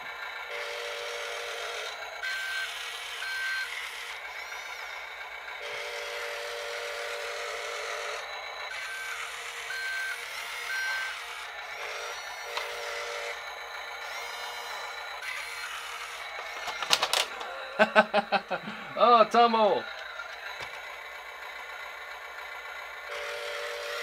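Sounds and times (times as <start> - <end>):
simulated engine through small speaker: 0.0 - 24.0
high reversing alarm beeps: 0.6 - 16.8.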